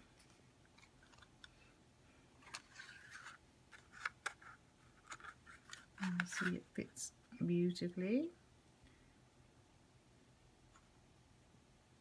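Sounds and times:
cardstock rustling: 2.4s - 6.8s.

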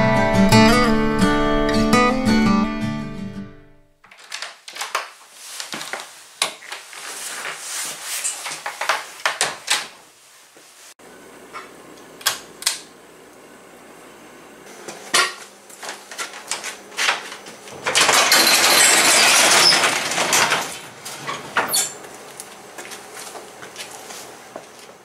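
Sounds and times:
knocks and clatter: 17.0s - 21.8s
garage door rattling open: 17.1s - 22.0s.

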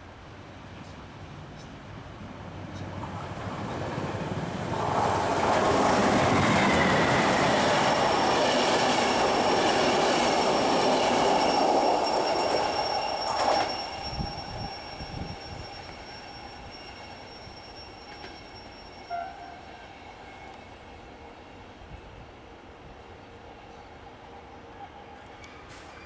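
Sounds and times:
train wheels rumbling on rails: 0.8s - 20.7s
thin high whine: 6.2s - 20.6s.

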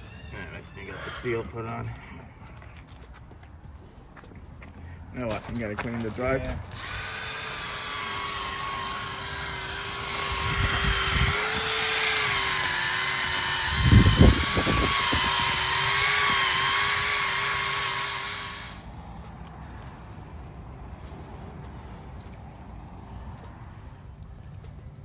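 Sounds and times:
cordless drill whining: 6.7s - 18.8s.

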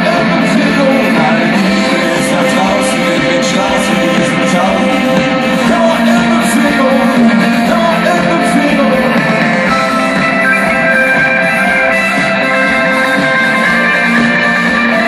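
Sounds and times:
person singing: 0.0s - 11.8s
live rock band: 0.0s - 15.0s.

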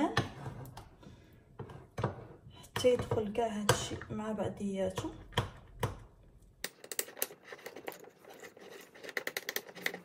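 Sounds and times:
spoon scraping glass bowl: 7.0s - 10.0s.

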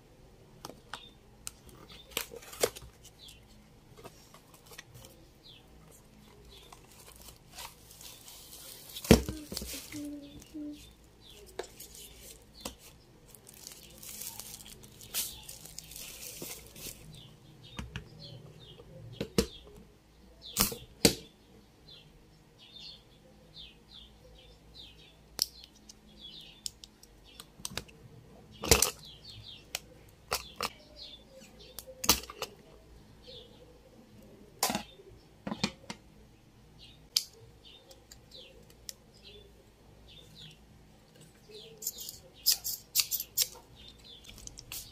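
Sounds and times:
birds chirping: 0.7s - 44.9s
plastic bag rustling: 6.4s - 10.7s, 13.3s - 17.2s
plastic clicks and snaps: 26.6s - 28.0s.

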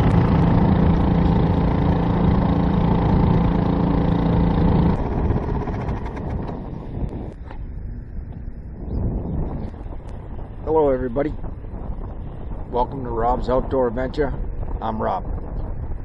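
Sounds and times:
outboard motor running: 0.0s - 7.7s
rough low rumble: 0.0s - 16.0s.

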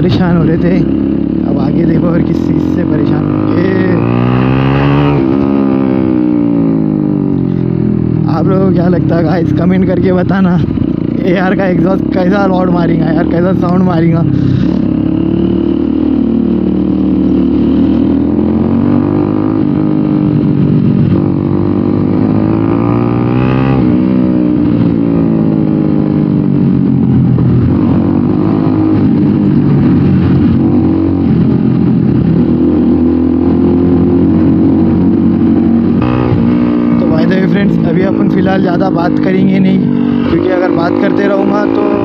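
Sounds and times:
motorcycle engine revving: 0.0s - 42.0s.

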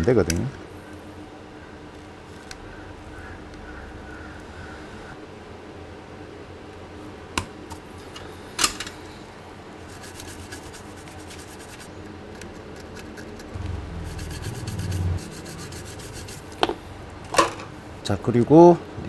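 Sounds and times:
brush scrubbing circuit board: 9.8s - 11.9s, 12.8s - 16.8s.

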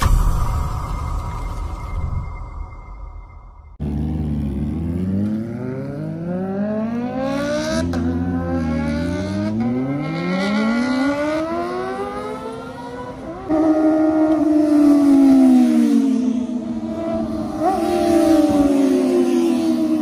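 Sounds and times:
high steady engine note: 3.8s - 20.0s
motorcycle engine accelerating: 3.8s - 20.0s.

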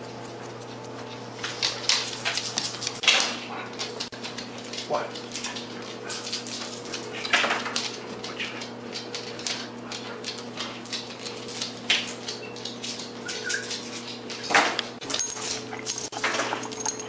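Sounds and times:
collar tag jingling: 15.0s - 17.0s.

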